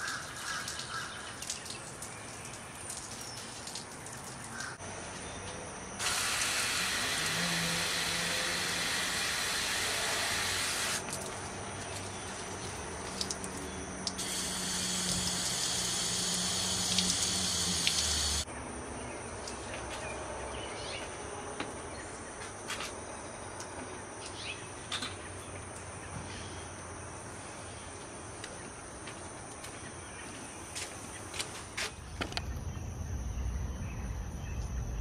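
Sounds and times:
hose nozzle spraying water: 0:06.0 - 0:11.3, 0:13.0 - 0:18.5.

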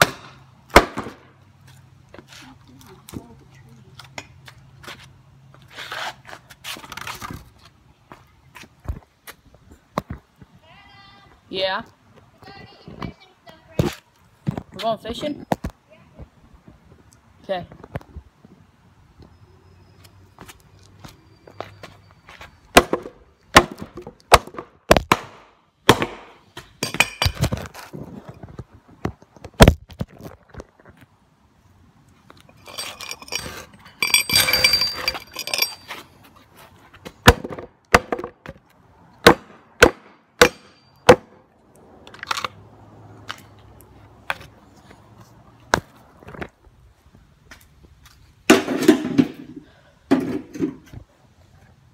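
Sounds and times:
hatchet chopping wood: 0:00.0 - 0:01.2, 0:22.7 - 0:26.4, 0:37.2 - 0:38.6, 0:39.2 - 0:41.4
rough handling noise: 0:32.1 - 0:37.6.

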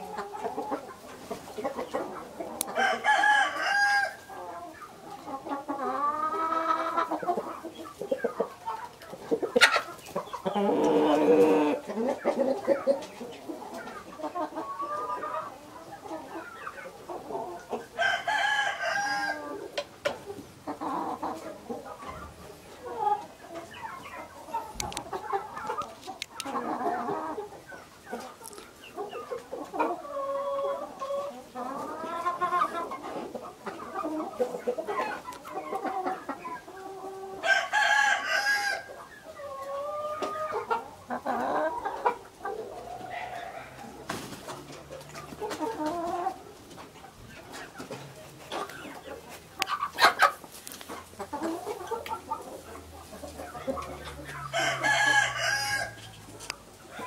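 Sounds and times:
chickens clucking: 0:00.0 - 0:57.0
rooster crowing: 0:02.8 - 0:04.2, 0:18.0 - 0:19.4, 0:37.4 - 0:38.9, 0:54.4 - 0:56.0.

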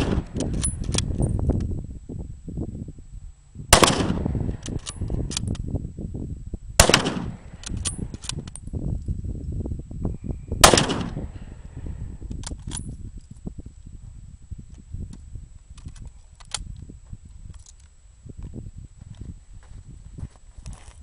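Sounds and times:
rifle shots: 0:00.0 - 0:00.7, 0:03.7 - 0:04.6, 0:06.8 - 0:08.2, 0:10.6 - 0:11.5.

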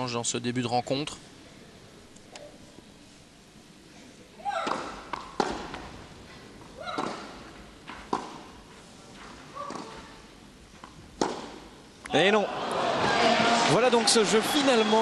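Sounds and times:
racket hitting tennis ball: 0:04.5 - 0:06.0, 0:06.8 - 0:08.6, 0:09.2 - 0:10.1, 0:10.8 - 0:11.7.

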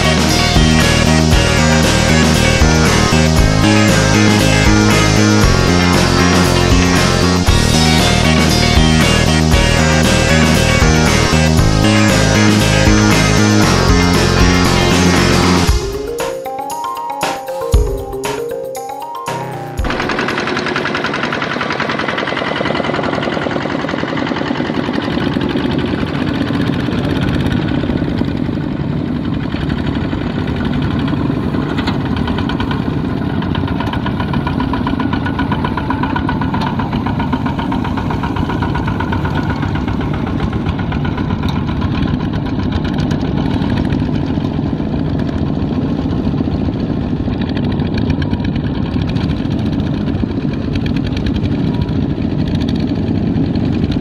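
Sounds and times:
diesel tractor engine knocking: 0:19.8 - 0:54.0.

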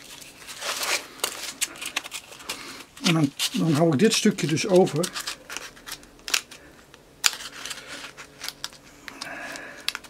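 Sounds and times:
sandpaper clicks and crackles: 0:00.0 - 0:10.0.

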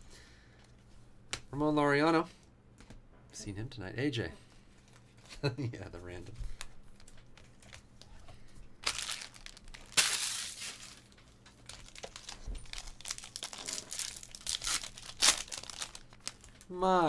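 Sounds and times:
foil wrapper crinkling: 0:08.8 - 0:16.7.

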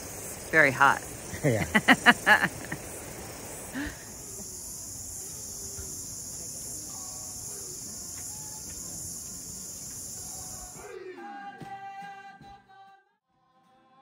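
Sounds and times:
low hiss: 0:00.0 - 0:10.8
insects shrilling: 0:00.0 - 0:10.9.

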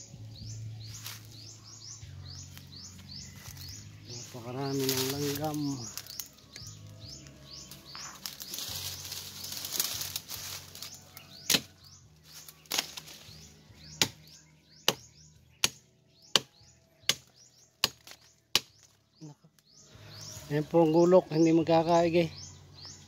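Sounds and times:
rustling through leaves: 0:00.8 - 0:01.8, 0:02.5 - 0:13.7
knife chopping a branch: 0:04.7 - 0:06.8, 0:09.5 - 0:19.0.

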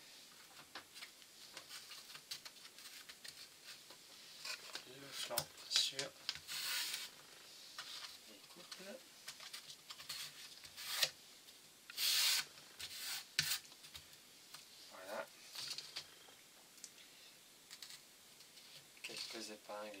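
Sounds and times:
rasping hiss: 0:06.4 - 0:07.8, 0:11.9 - 0:13.6.

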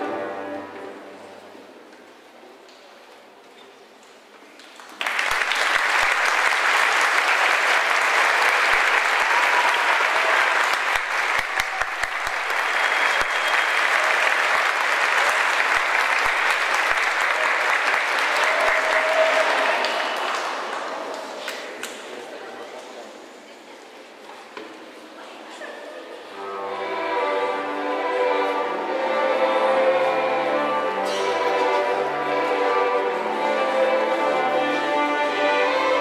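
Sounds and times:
audience applauding: 0:04.6 - 0:22.0.

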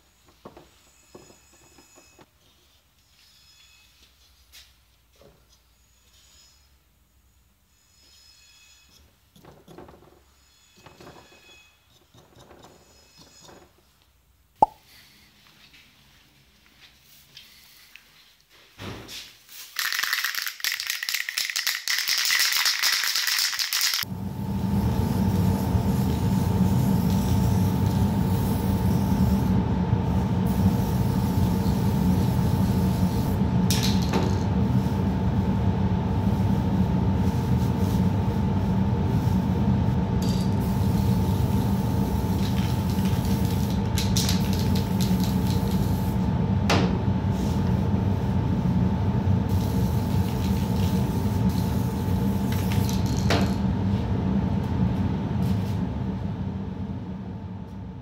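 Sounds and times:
steady mechanical hum: 0:23.4 - 0:58.0
aerosol spray can hissing: 0:49.5 - 0:53.2.

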